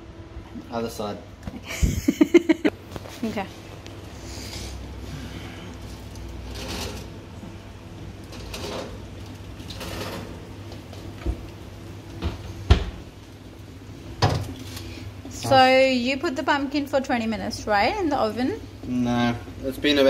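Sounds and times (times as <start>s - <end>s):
oven fan humming: 0.0s - 20.0s
metal tray scraping oven rack: 6.4s - 7.2s, 8.2s - 10.6s.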